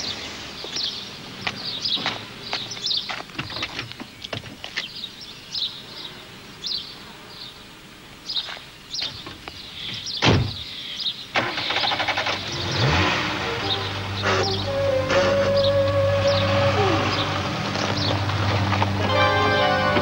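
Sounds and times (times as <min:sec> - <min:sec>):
birds chirping: 0:00.0 - 0:20.0
car door slamming: 0:10.2 - 0:10.6
car engine starting and revving: 0:11.4 - 0:20.0.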